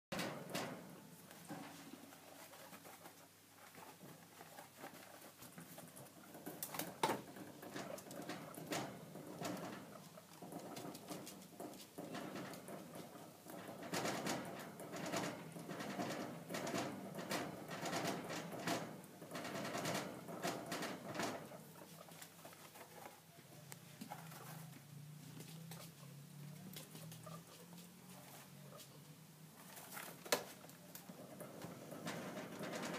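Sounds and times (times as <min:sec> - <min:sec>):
cage bars rattling: 0:00.1 - 0:02.7, 0:05.8 - 0:22.0, 0:29.6 - 0:32.9
guinea pig vocal sounds: 0:02.0 - 0:11.4, 0:26.7 - 0:29.0.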